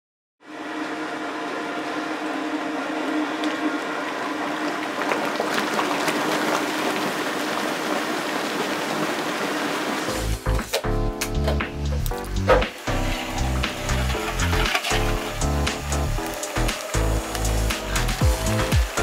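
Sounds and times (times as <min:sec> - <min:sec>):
low machine hum: 0:00.4 - 0:19.0
machinery hissing: 0:05.6 - 0:11.0, 0:11.6 - 0:19.0.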